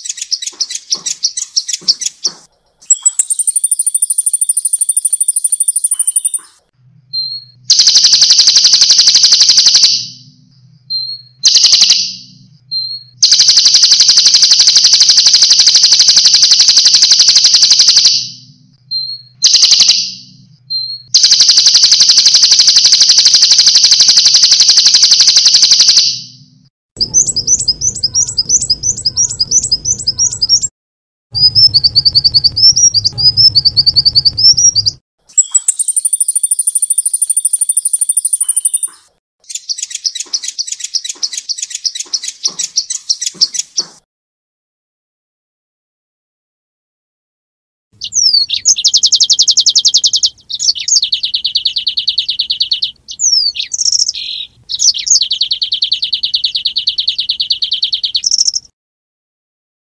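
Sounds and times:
songbird trills: 0.0 - 18.0, 31.4 - 44.0, 48.0 - 58.7
bird chirping: 0.0 - 30.7, 31.4 - 44.0, 48.0 - 58.7
fast repeated bird notes: 0.0 - 30.7, 31.3 - 44.0, 48.0 - 58.8
high steady bird whistle: 0.0 - 30.7, 31.4 - 43.6, 48.0 - 58.7.

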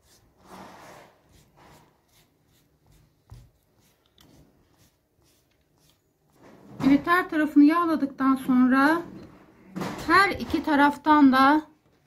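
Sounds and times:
pastry brush swishing on dough: 0.0 - 6.5.

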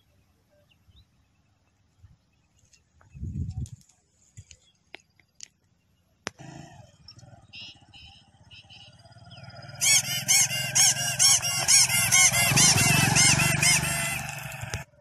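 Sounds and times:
motorcycle engine running: 6.4 - 15.0
novelty motorcycle horn: 7.4 - 14.9.

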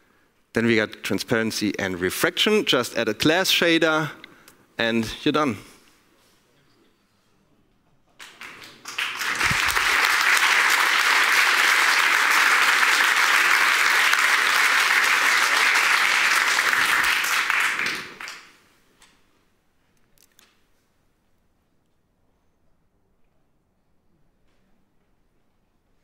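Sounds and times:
audience applauding: 8.2 - 18.6.

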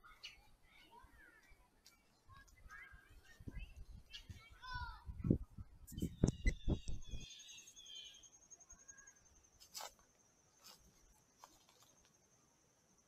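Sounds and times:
short bird chirps: 5.9 - 10.0.

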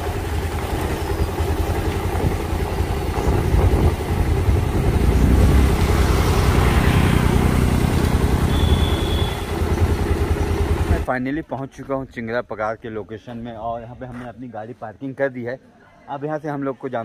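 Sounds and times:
motorbike engine running: 0.0 - 11.1
wind noise on microphone: 2.2 - 6.3.

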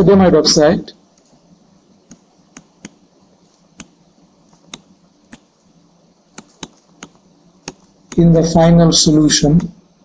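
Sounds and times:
stylus tapping on pen tablet: 2.0 - 5.5, 6.3 - 8.2.

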